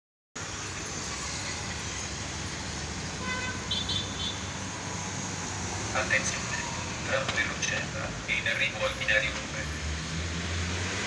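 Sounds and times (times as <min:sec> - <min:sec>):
road traffic noise: 0:00.4 - 0:11.0.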